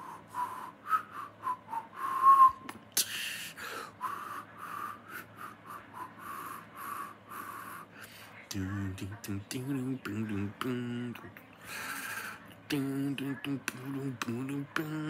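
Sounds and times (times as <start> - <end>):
man whistling: 0.0 - 2.8.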